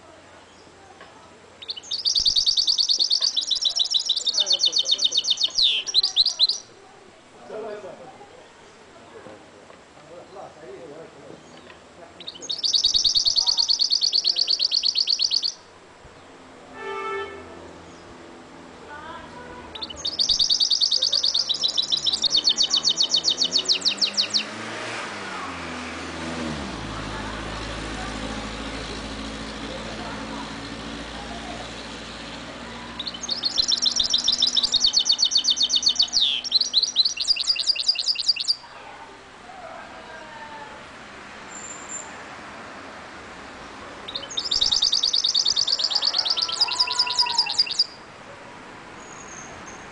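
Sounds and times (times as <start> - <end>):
faint traffic hum: 0.0 - 49.9
bird singing high trill: 1.6 - 6.8, 12.2 - 15.7, 19.7 - 24.6, 32.8 - 38.7, 44.1 - 48.1.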